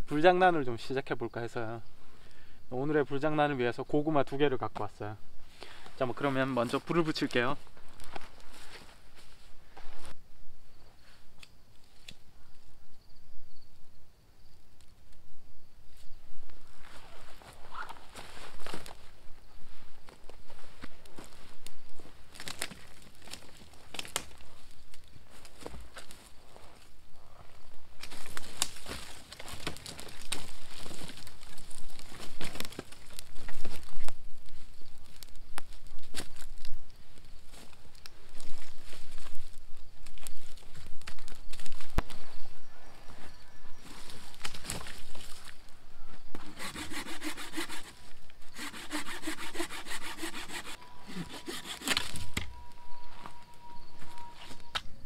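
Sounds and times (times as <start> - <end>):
twigs rustling: 5.5 - 10.2, 16.0 - 54.9
campfire crackling and popping: 22.4 - 25.1, 28.0 - 37.0
hand saw cutting branch: 46.4 - 52.2.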